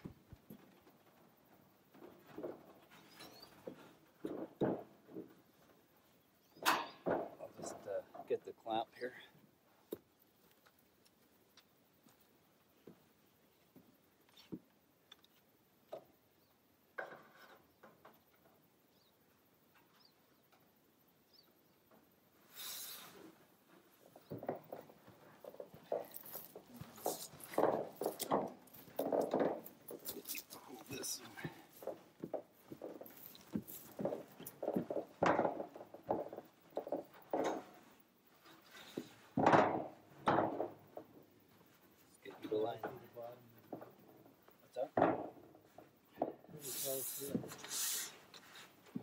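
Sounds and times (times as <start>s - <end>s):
metal panels knocking and scraping: 0.0s - 5.8s, 6.6s - 8.4s, 24.0s - 41.4s, 42.3s - 46.6s
faint bird chirps: 2.9s - 3.7s, 18.8s - 21.9s.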